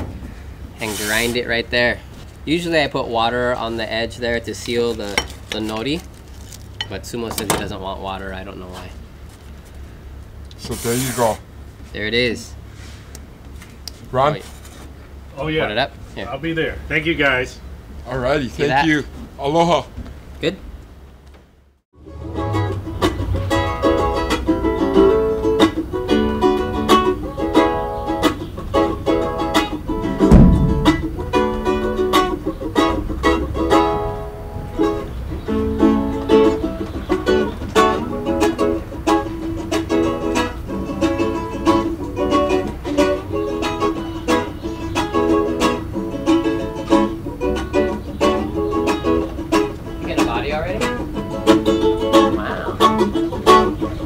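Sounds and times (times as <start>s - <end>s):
ukulele strummed and picked: 22.0s - 54.0s
loud thump: 30.2s - 31.8s.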